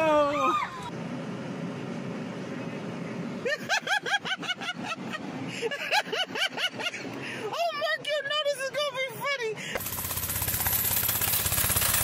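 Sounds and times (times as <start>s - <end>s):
traffic hum: 0.0s - 12.0s
person laughing: 3.4s - 7.2s.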